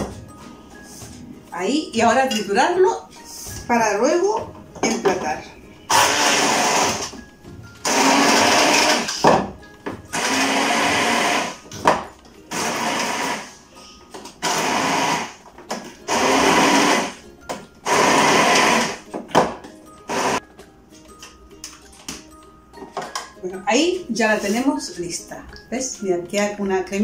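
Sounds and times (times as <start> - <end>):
electric hand blender bursts: 5.9 - 7.1, 7.8 - 9.2, 10.1 - 11.6, 12.5 - 13.6, 14.4 - 15.4, 16.1 - 17.2, 17.8 - 19.0, 20.1 - 20.4.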